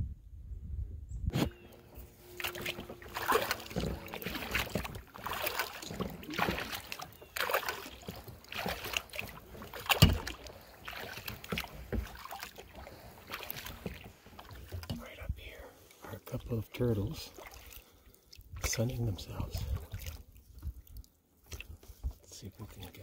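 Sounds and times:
paddle splashing in water: 1.3 - 15.1, 17.2 - 18.8, 19.4 - 23.0.

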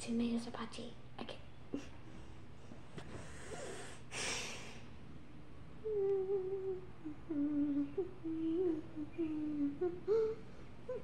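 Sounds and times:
girl humming: 5.8 - 11.0.

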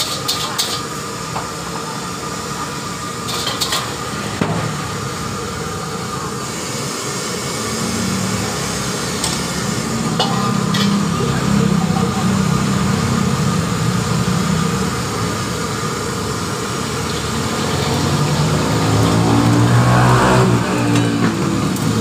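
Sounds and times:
wok clinking against stove: 0.0 - 0.9, 10.1 - 11.2
gas burner rushing: 0.0 - 22.0.

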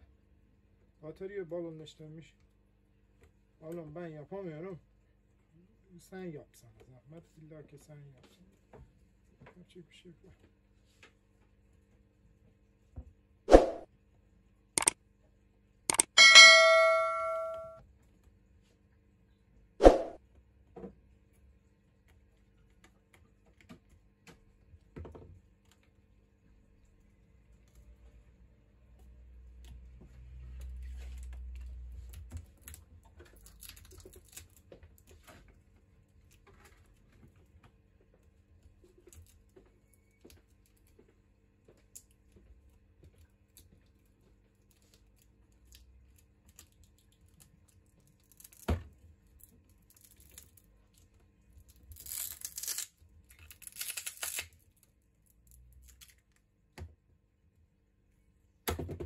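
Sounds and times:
small clicks and handling noises: 15.9 - 16.2, 22.0 - 26.0, 30.6 - 57.0
sharp click: 15.9 - 17.7
adhesive tearing: 51.7 - 54.6.

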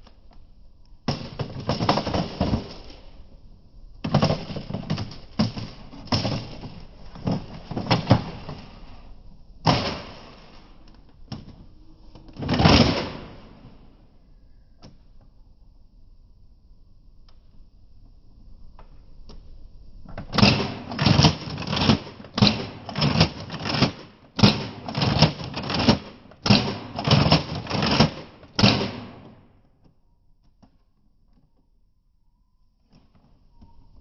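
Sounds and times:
plastic toy blaster clattering: 20.3 - 29.4.

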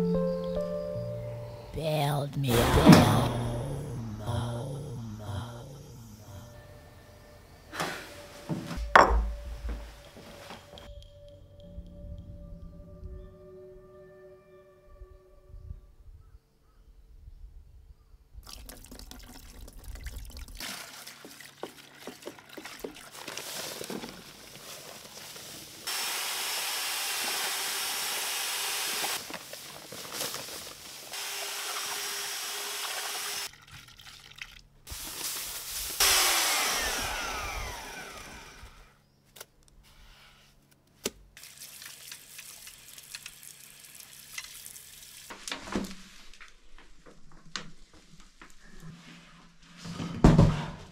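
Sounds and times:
water and powder pouring: 18.4 - 36.3, 41.4 - 45.3
water running from tap: 18.5 - 23.2, 31.2 - 34.6, 41.4 - 45.3
electric paddle mixer running: 25.9 - 29.2, 31.2 - 33.5, 36.0 - 38.9.

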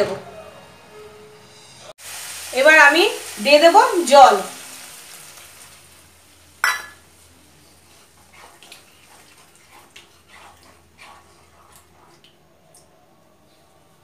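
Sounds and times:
water poured into hot pan: 2.0 - 7.2
wooden spatula stirring in pan: 7.2 - 12.5.

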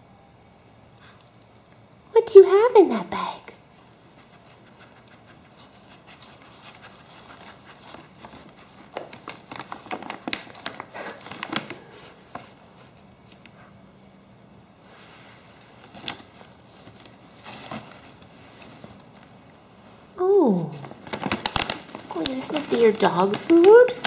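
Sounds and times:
plastic packet crinkling: 6.2 - 12.5, 20.8 - 24.0
fabric bag rustling: 14.8 - 24.0.

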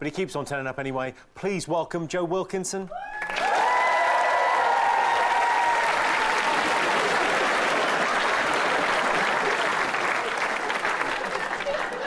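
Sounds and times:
people whooping: 2.9 - 10.4
audience applauding: 3.1 - 12.0.

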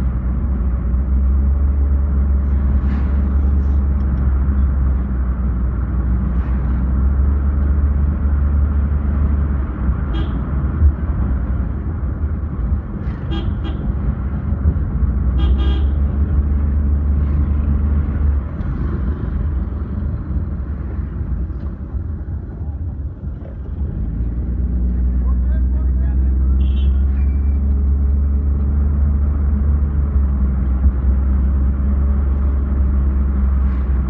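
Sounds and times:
car cabin road rumble: 0.0 - 34.0
vehicle horn toots: 10.1 - 10.5, 13.3 - 13.9, 15.4 - 16.0, 26.6 - 27.1.

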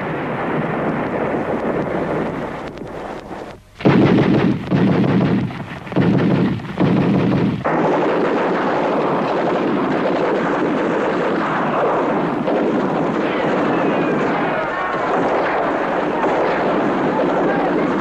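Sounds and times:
artillery explosions: 0.0 - 18.0
rumble of continuing fire: 0.0 - 18.0.

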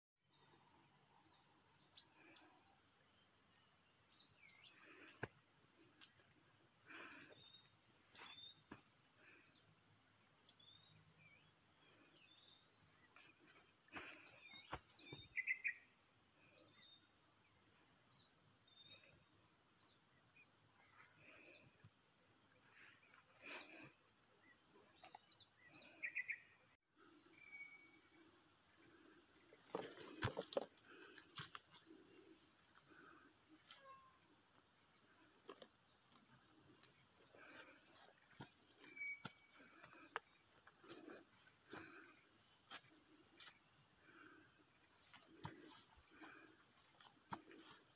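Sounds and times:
insects chirring: 0.3 - 47.9
bird chirps: 14.3 - 15.9.

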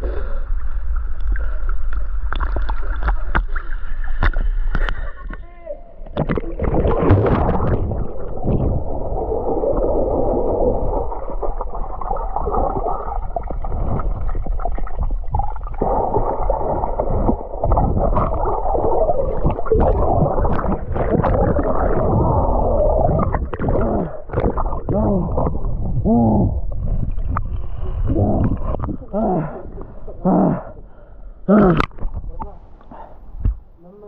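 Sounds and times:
underwater rumble of moving water: 0.0 - 5.3, 5.9 - 33.8
gurgling bubbles: 6.1 - 30.8.

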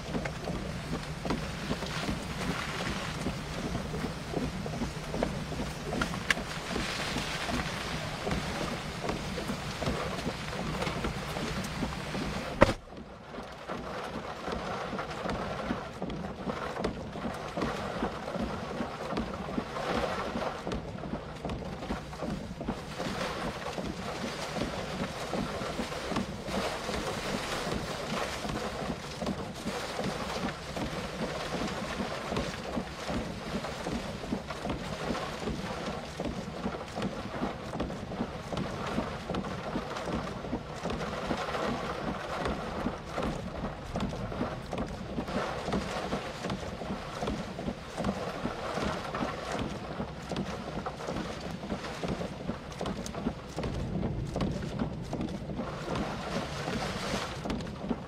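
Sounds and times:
wind buffeting microphone: 0.0 - 12.9, 22.0 - 58.0
heavy rain: 0.0 - 14.2, 22.1 - 58.0.

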